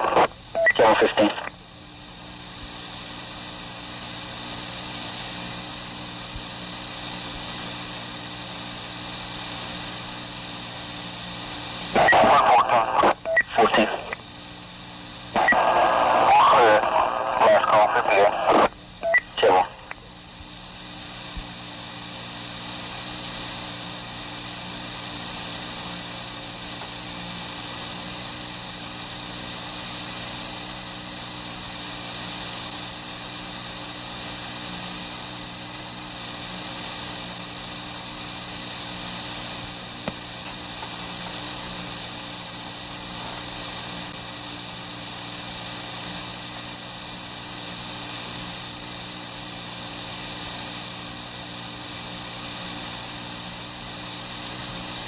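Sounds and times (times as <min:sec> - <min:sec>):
radio click: 0:00.0 - 0:01.6, 0:15.4 - 0:20.0, 0:40.0 - 0:41.0
tape hiss and hum: 0:00.0 - 0:55.0.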